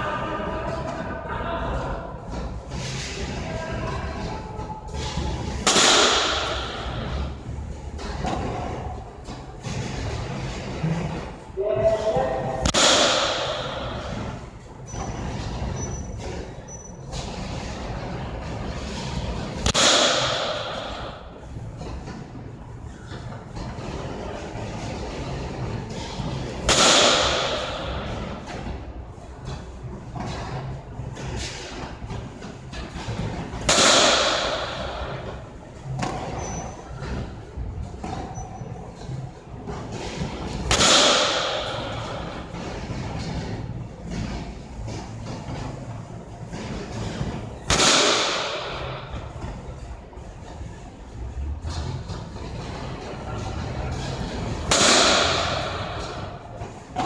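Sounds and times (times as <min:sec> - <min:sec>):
low machinery hum: 0:00.0 - 0:57.0
baseball impact: 0:05.1 - 0:07.4, 0:11.9 - 0:14.5, 0:19.2 - 0:21.4, 0:25.9 - 0:28.7, 0:32.8 - 0:37.4, 0:39.7 - 0:42.9, 0:46.6 - 0:49.6, 0:54.1 - 0:57.0
bat striking ball: 0:05.6 - 0:07.0, 0:12.5 - 0:14.2, 0:19.6 - 0:21.3, 0:26.7 - 0:28.2, 0:33.6 - 0:35.3, 0:40.6 - 0:42.4, 0:47.7 - 0:49.2, 0:54.6 - 0:56.4.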